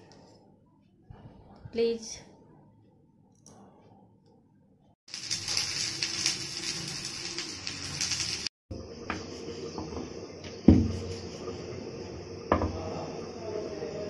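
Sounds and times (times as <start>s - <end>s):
vegetables sizzling in a pan: 5.1s - 14.0s.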